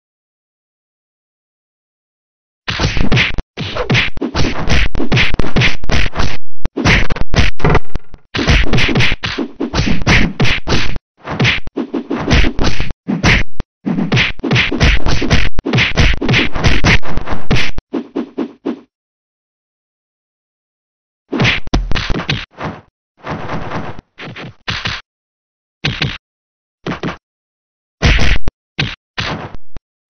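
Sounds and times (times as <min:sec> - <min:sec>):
cartoon punch and kick hits: 0:02.7 - 0:17.9, 0:21.3 - 0:25.0, 0:25.8 - 0:26.2, 0:26.8 - 0:27.2, 0:28.0 - 0:29.6.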